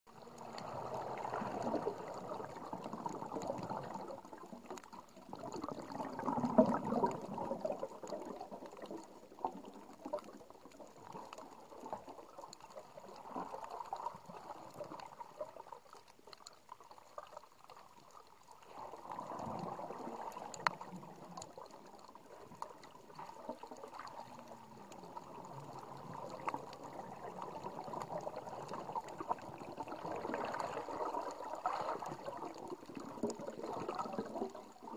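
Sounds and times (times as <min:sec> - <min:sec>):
underwater water sloshing and gurgling: 0:00.1 - 0:34.9.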